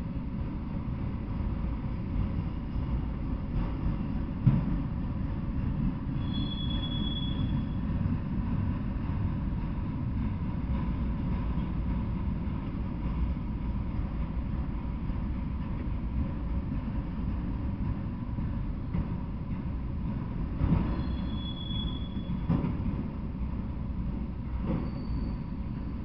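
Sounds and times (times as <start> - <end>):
freight train wheels rumbling: 0.0 - 26.0
high wheel squeal: 6.2 - 7.8, 20.9 - 22.5, 24.8 - 25.8.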